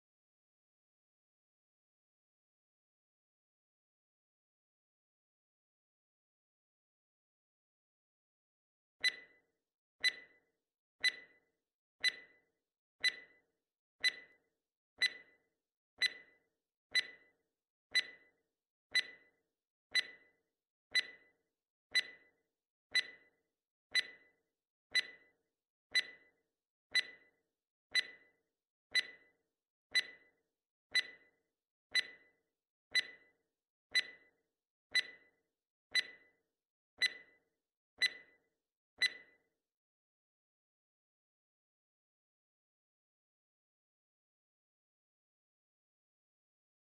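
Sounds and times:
countdown timer ticking: 0:16.9 - 0:17.2, 0:17.9 - 0:18.2, 0:19.9 - 0:20.2, 0:21.9 - 0:22.2, 0:23.9 - 0:24.2, 0:27.9 - 0:28.2, 0:31.9 - 0:32.2, 0:32.9 - 0:33.2.

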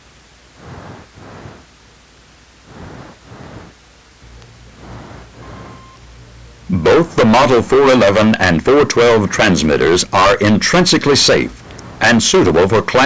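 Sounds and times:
tape hiss and hum: 0:00.0 - 0:13.0
short steady beep: 0:04.8 - 0:06.1.

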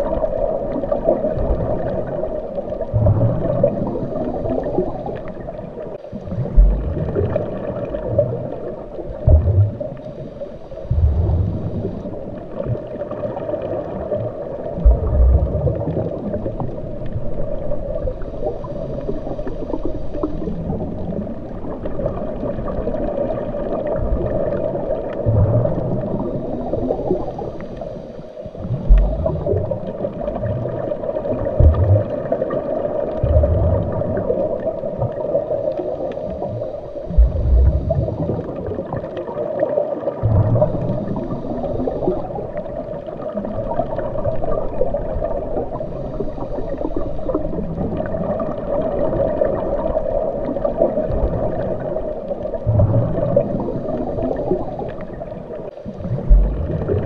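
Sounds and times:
muffled underwater rush: 0:00.0 - 0:57.0
water gurgles: 0:00.0 - 0:57.0
low underwater thumps: 0:02.9 - 0:03.6, 0:06.3 - 0:07.4, 0:09.1 - 0:10.0, 0:10.8 - 0:11.9, 0:14.8 - 0:15.9, 0:25.2 - 0:26.0, 0:28.6 - 0:30.6, 0:31.6 - 0:32.2, 0:33.2 - 0:34.2, 0:36.3 - 0:38.4, 0:40.2 - 0:41.0, 0:52.6 - 0:53.4, 0:56.0 - 0:57.0.

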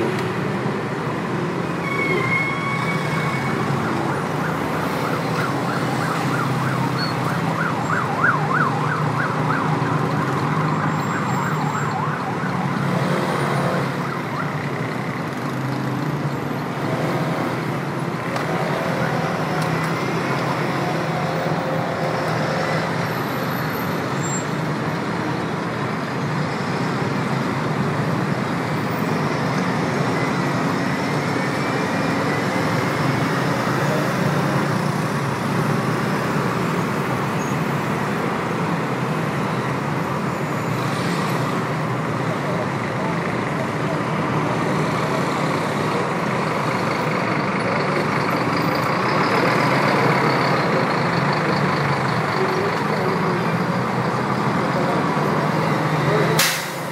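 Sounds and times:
city traffic: 0:00.0 - 0:56.9
siren yelping: 0:01.9 - 0:14.7.

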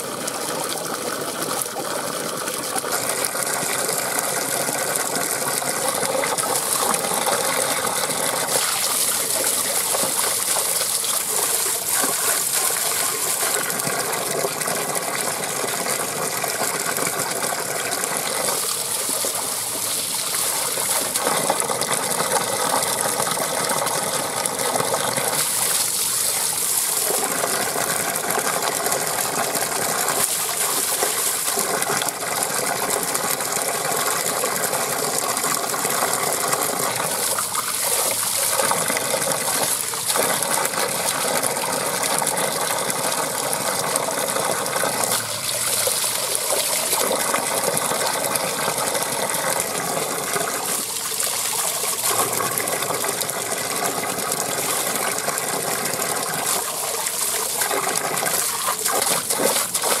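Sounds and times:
water gushing onto rocks: 0:00.0 - 1:00.0
hands rinsing vegetables: 0:56.2 - 1:00.0.

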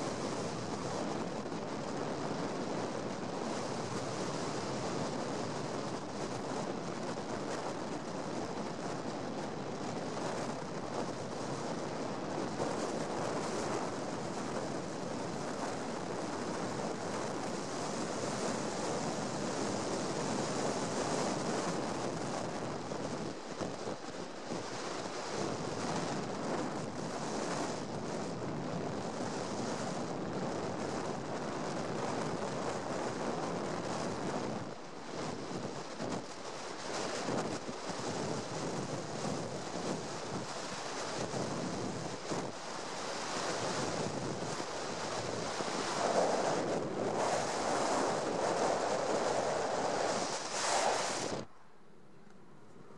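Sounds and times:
wind rush: 0:00.0 - 0:51.8.

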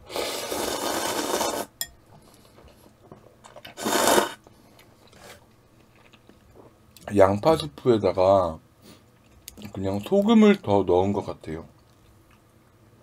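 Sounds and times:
noodles being slurped: 0:00.1 - 0:01.7, 0:03.6 - 0:04.4.

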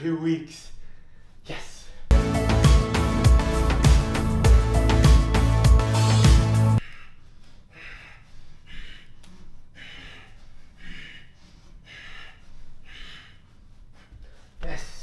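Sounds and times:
man breathing hard: 0:00.7 - 0:02.7, 0:05.8 - 0:14.6
background music: 0:02.1 - 0:06.8.

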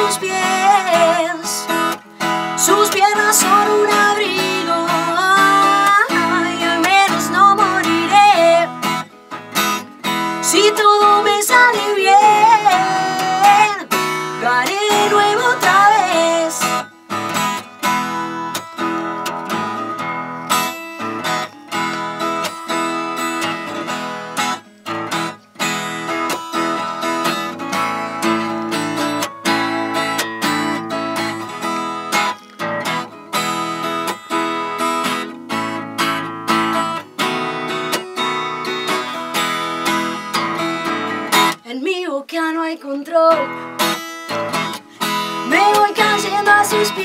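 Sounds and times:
acoustic guitar strumming: 0:00.0 - 0:47.0.

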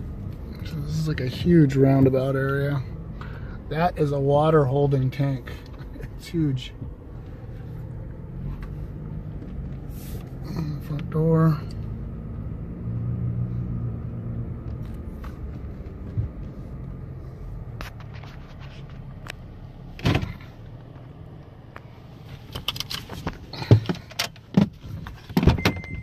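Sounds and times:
car rumbling from inside cabin: 0:00.0 - 0:26.0
sharp clicks and knocks: 0:14.6 - 0:17.0
car electronic chime beeping: 0:25.6 - 0:26.0.

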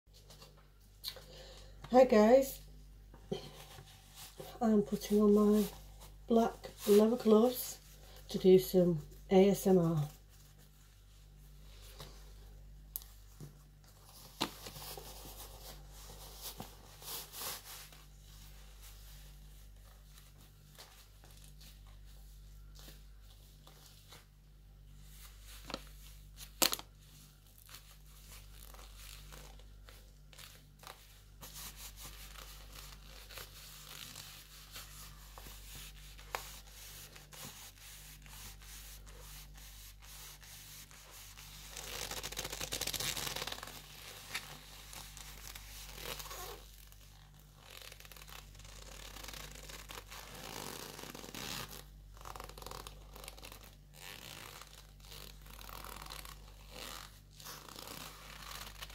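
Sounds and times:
leather gloves rubbing: 0:13.2 - 0:24.4, 0:27.2 - 0:58.9.

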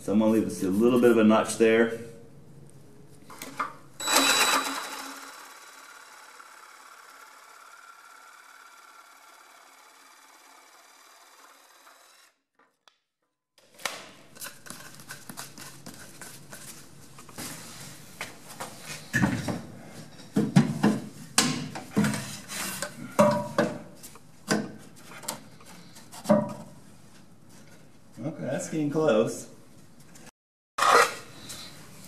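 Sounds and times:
jigsaw cutting wood: 0:04.0 - 0:12.4.

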